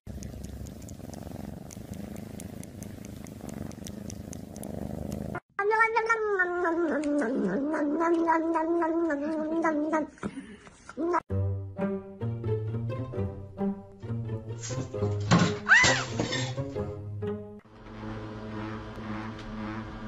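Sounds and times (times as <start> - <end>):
cat purring: 0.1 - 5.4
background music: 11.3 - 20.0.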